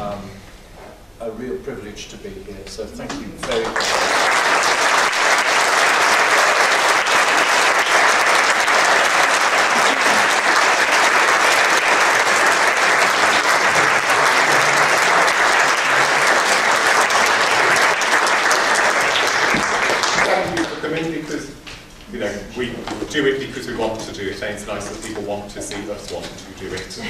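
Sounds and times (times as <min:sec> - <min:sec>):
audience applauding: 0:03.4 - 0:20.8.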